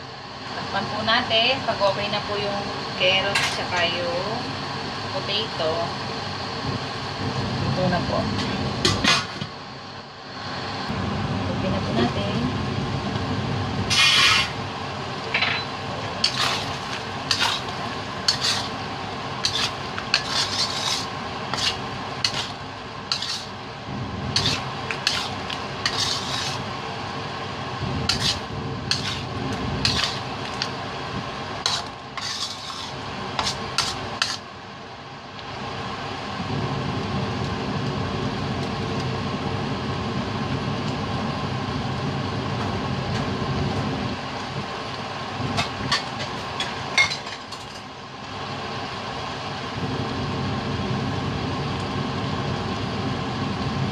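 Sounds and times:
low background rumble: 10.8s - 46.1s
utensil stirring in a pan: 13.9s - 14.7s, 16.0s - 26.8s, 28.0s - 34.5s.

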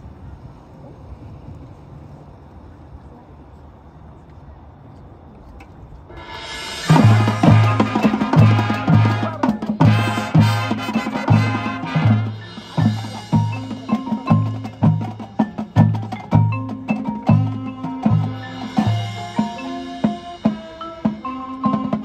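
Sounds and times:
marching band playing: 6.1s - 22.0s
mallet percussion notes: 6.4s - 22.0s.

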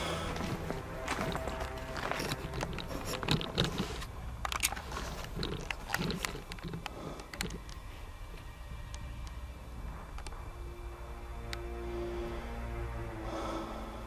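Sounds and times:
footsteps crunching on gravel: 0.0s - 6.8s
low steady hum: 0.0s - 14.0s.

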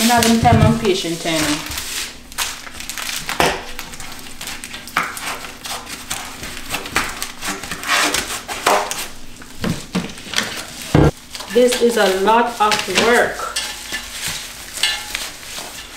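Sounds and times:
bubble wrap crinkling: 0.0s - 15.9s.

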